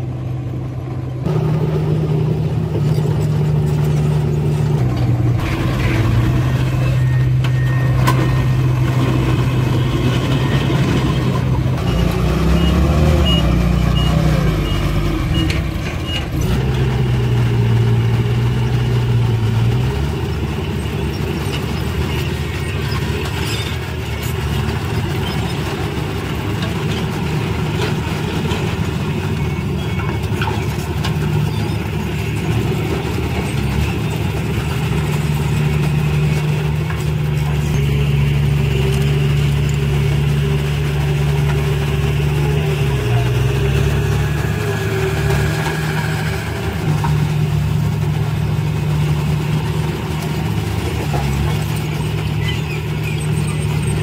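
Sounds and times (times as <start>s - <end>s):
diesel truck engine running: 0.0s - 54.0s
reversing beeps: 6.5s - 16.3s.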